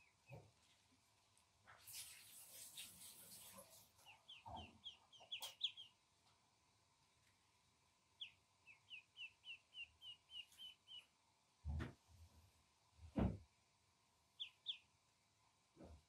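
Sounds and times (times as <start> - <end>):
duckling peeping: 3.3 - 6.0, 8.2 - 11.2, 14.4 - 14.9.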